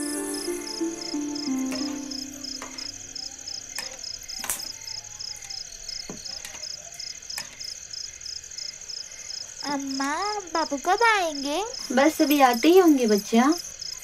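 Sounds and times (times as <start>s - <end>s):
soft music tone: 0.0s - 4.3s
crickets chirping: 0.0s - 14.0s.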